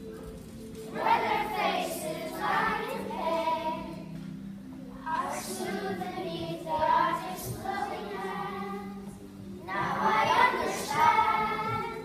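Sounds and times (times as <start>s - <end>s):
children singing in a choir: 0.8s - 4.2s, 5.0s - 12.0s.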